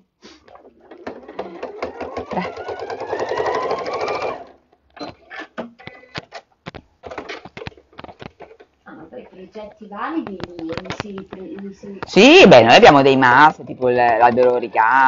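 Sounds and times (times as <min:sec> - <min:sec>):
sewing machine stitching: 0:00.5 - 0:06.4
clicks and taps of handling: 0:05.6 - 0:08.7, 0:10.2 - 0:12.2.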